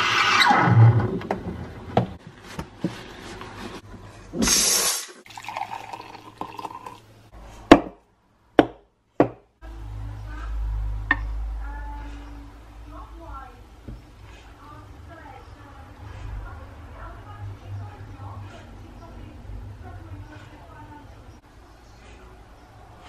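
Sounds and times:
steam wand hissing: 4.4s - 5.2s
liquid pouring into a mug: 5.2s - 7.1s.

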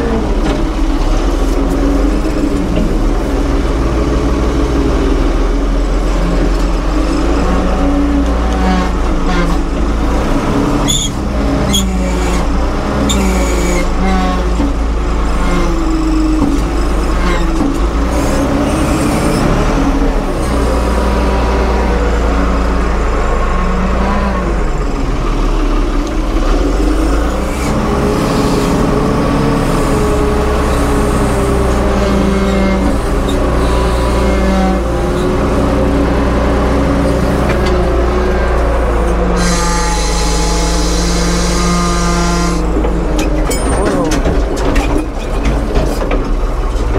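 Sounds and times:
diesel engine revving: 0.0s - 46.9s
metal clanks: 42.7s - 46.9s.

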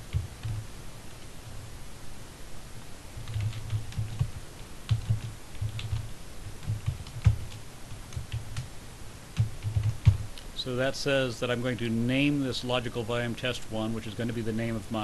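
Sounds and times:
keyboard typing: 0.0s - 0.7s, 3.2s - 8.7s, 9.4s - 10.3s.

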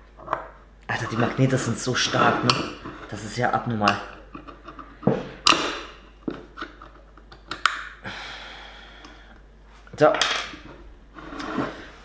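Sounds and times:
soft scrape: 11.1s - 12.0s.

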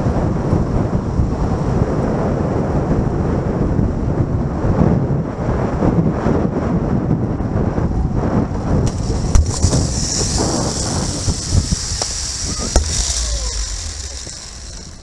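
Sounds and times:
wind buffeting microphone: 0.0s - 15.0s
zip wire trolley running on cable: 8.8s - 15.0s
trolley clacking: 8.9s - 15.0s.

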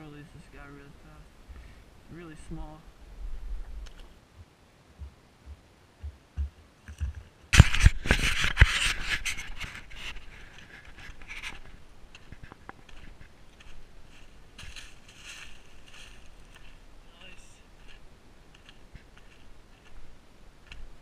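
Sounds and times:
footsteps crunching dry leaves: 7.8s - 20.1s.

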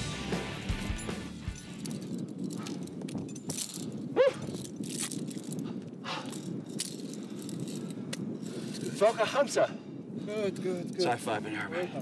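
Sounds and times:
low wind rumble: 0.0s - 12.0s
climbing gear clinking: 0.8s - 9.2s.

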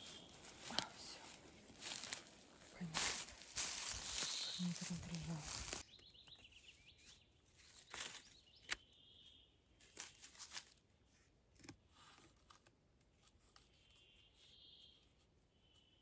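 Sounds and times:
twine rustling: 0.0s - 5.8s.

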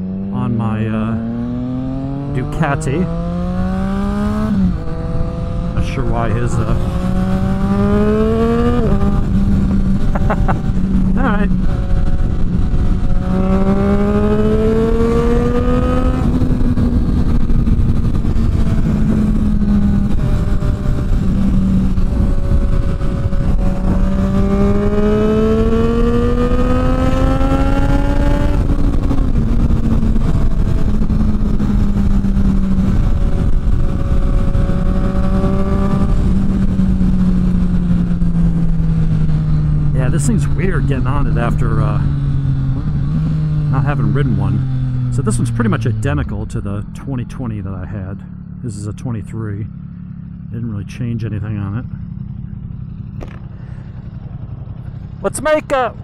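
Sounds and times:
motorcycle engine accelerating: 0.0s - 56.0s
wind noise on microphone: 6.5s - 40.6s.

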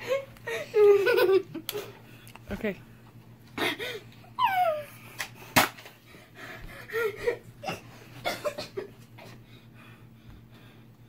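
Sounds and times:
sharp pop: 5.6s - 5.8s.

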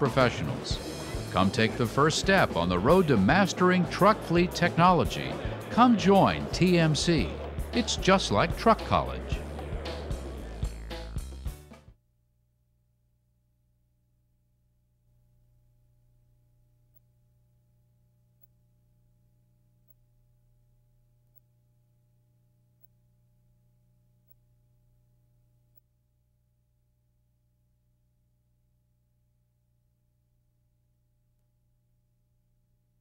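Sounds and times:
faint low hum: 12.6s - 33.0s.

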